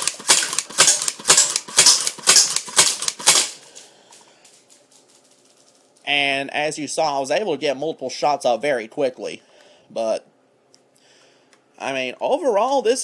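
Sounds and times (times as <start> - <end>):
airsoft pistol shots clacking: 0.0 - 3.6.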